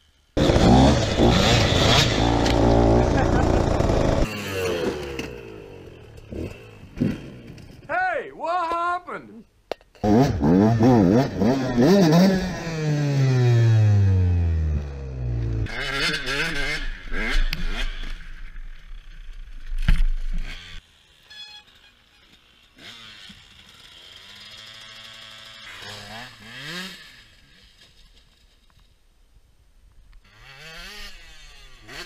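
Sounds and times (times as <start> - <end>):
dirt bike engine revving: 0.4 - 7.9, 10.0 - 19.1, 22.0 - 27.8, 30.3 - 32.0.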